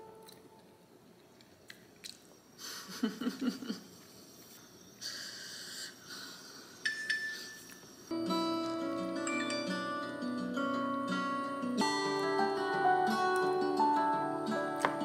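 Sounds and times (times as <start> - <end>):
plucked-string music: 8.1 - 15.0.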